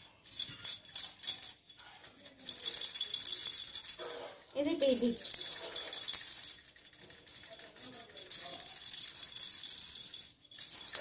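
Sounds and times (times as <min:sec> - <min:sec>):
plastic baby rattle shaken: 0:00.0 - 0:11.0.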